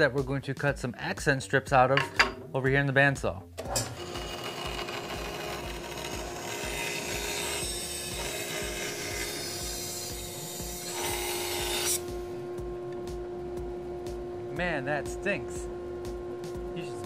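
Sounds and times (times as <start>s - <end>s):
bandsaw motor humming: 3.5s - 17.0s
saw blade rasping through wood: 3.8s - 12.0s.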